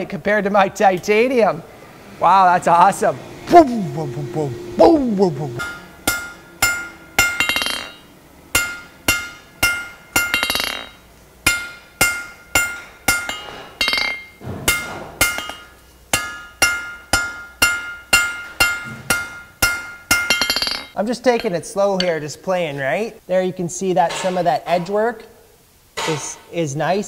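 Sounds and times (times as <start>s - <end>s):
hammer ringing on anvil: 5.5s - 22.2s.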